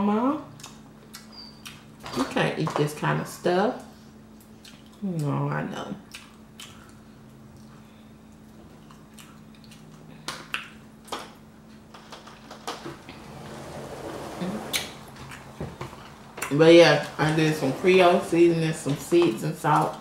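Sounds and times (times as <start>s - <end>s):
faint steady hum: 0.0s - 20.0s
chewing sounds: 4.3s - 5.3s, 6.0s - 10.8s.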